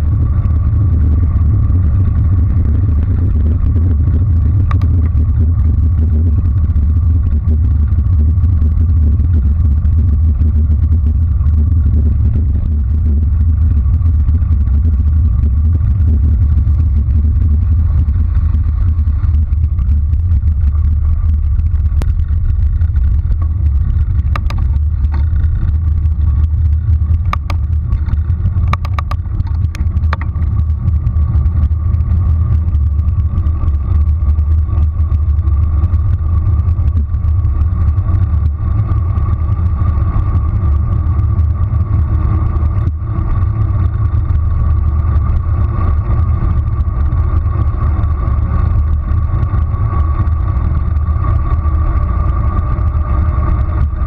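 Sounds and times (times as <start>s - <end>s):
faint steady hum: 0.0s - 54.0s
wind buffeting microphone: 0.0s - 54.0s
sharp clicks: 21.0s - 25.8s, 26.4s - 30.7s.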